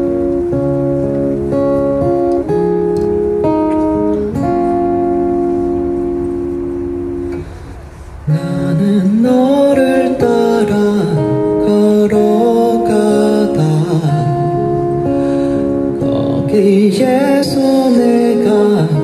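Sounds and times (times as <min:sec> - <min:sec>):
guitar chords ringing: 0:00.0 - 0:19.0
man singing: 0:08.3 - 0:19.0.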